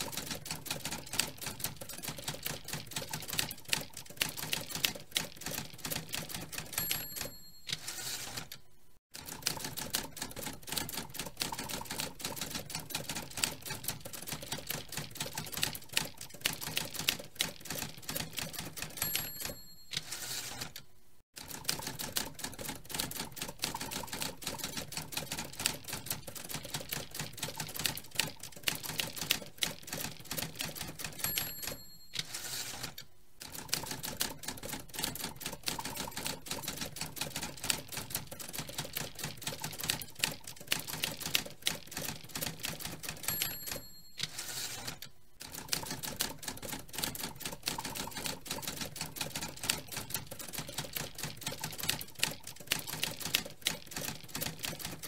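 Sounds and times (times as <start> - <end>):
typewriter clatter: 0.0 - 8.6, 9.2 - 20.8, 21.4 - 55.0
typewriter bell ring: 6.2 - 8.5, 18.6 - 20.7, 30.9 - 32.9, 42.9 - 45.0.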